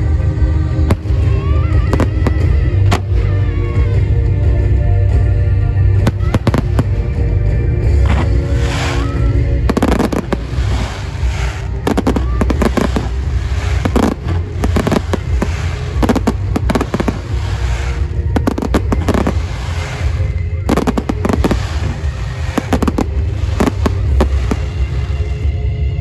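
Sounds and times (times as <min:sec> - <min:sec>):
fireworks bursting with sharp bangs: 0:00.3 - 0:04.2, 0:05.9 - 0:25.7.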